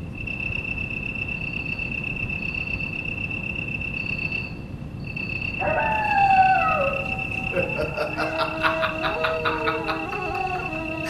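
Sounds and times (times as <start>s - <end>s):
insects chirring: 0.0s - 11.0s
animal howling: 5.6s - 11.0s.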